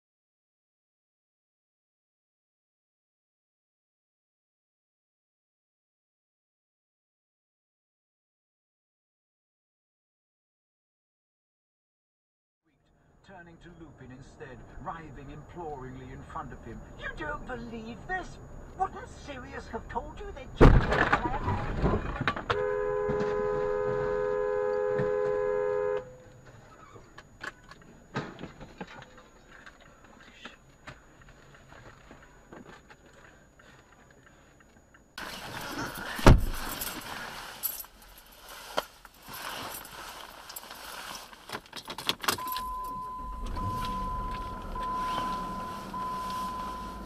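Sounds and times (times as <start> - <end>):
car horn blaring: 22.5 - 26.4, 42.4 - 47.0
high beeping: 42.4 - 47.0.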